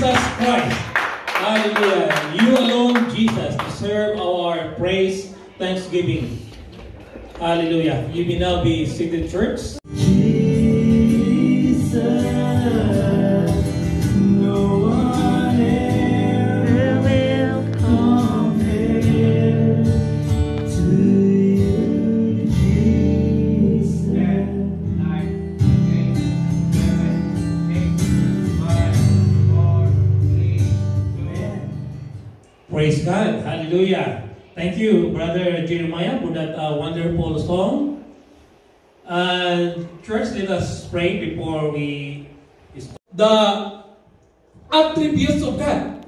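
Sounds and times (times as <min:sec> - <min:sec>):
man singing worship song: 0:09.8 - 0:25.0.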